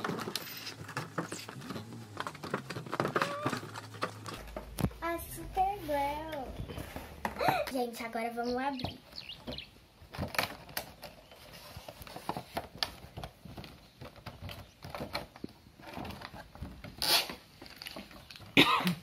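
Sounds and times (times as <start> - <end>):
plastic packaging crackling: 0.0 - 5.2, 10.1 - 18.6.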